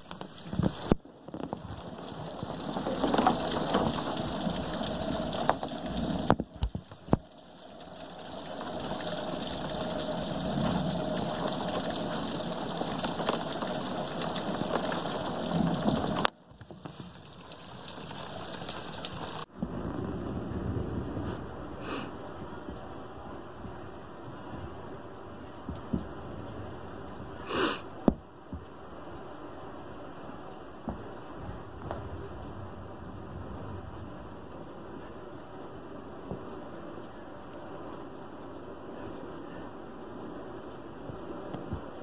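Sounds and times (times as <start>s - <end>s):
rain beating on window: 0.0s - 42.0s.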